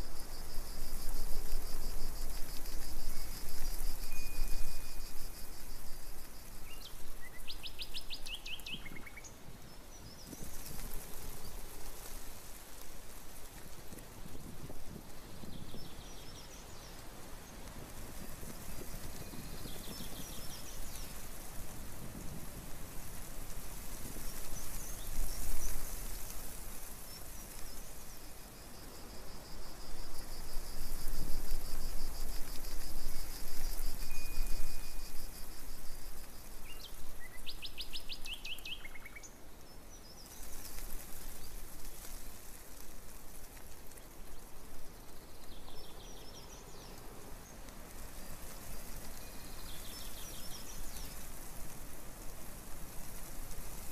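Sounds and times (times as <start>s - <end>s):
outdoor hiss: 0.0s - 53.9s
songbirds calling and singing: 6.7s - 10.7s.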